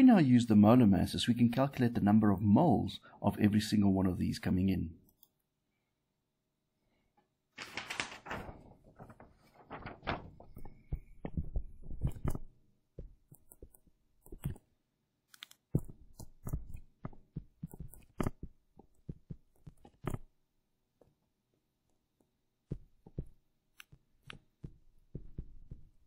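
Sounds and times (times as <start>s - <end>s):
handling rustle: 7.6s - 11.0s.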